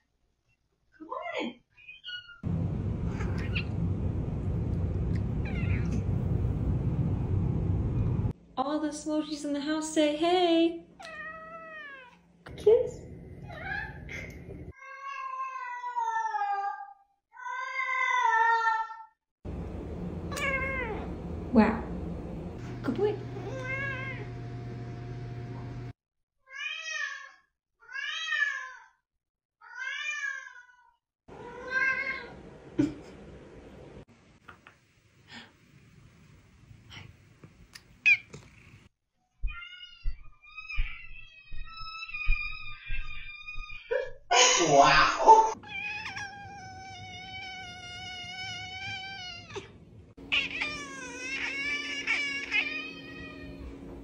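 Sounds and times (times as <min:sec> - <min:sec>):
low steady hum: 0:02.5 - 0:10.9, 0:19.5 - 0:25.9, 0:49.7 - 0:54.0
cat meowing: 0:05.4 - 0:06.0, 0:11.0 - 0:12.2, 0:20.3 - 0:21.1, 0:23.4 - 0:24.4, 0:26.5 - 0:28.9, 0:29.6 - 0:32.3, 0:39.4 - 0:43.9, 0:45.5 - 0:53.6
room noise: 0:19.5 - 0:25.9, 0:49.6 - 0:54.0.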